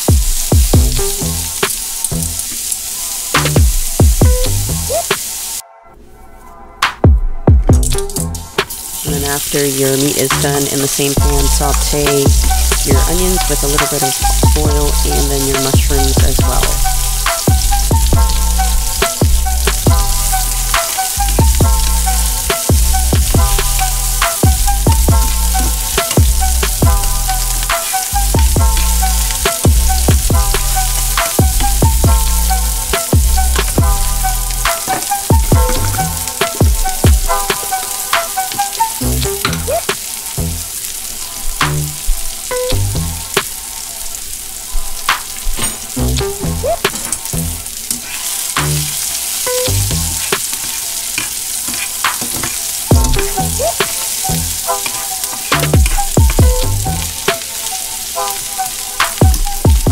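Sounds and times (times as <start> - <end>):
onions sizzling in oil: 0.0 - 5.6, 7.8 - 59.9
stirring clicks: 46.6 - 57.5.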